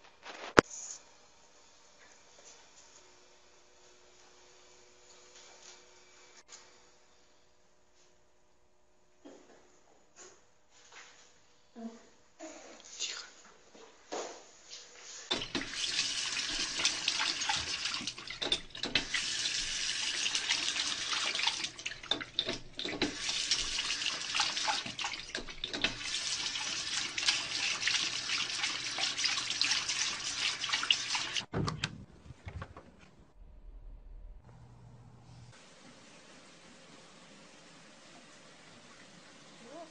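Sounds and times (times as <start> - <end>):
water running from sink tap: 15.3 - 31.5.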